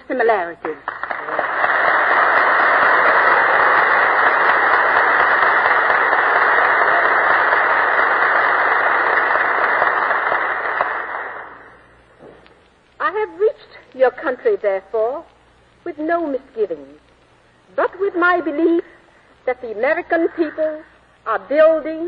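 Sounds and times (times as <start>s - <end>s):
audience applauding: 0.8s - 11.8s.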